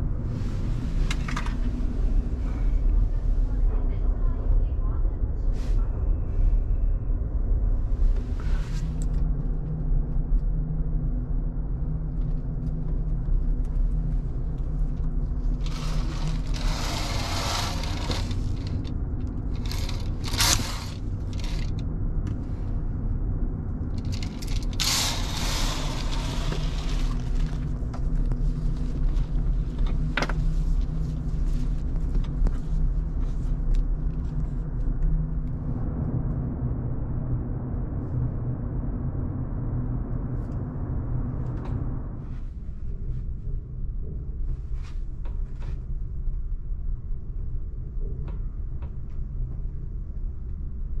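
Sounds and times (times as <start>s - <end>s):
low drone of ferry engines: 0.0s - 51.0s
curtain rustling and scraping: 15.6s - 18.9s, 19.5s - 21.8s, 24.0s - 27.7s.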